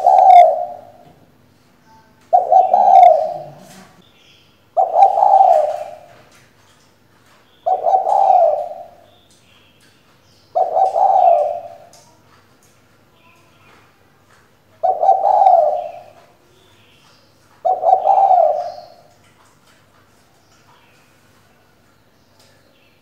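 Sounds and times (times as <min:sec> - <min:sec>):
dove cooing: 0:00.0 - 0:01.1, 0:02.2 - 0:04.0, 0:04.8 - 0:06.4, 0:07.6 - 0:09.2, 0:10.5 - 0:12.1, 0:14.7 - 0:16.7, 0:17.6 - 0:19.2.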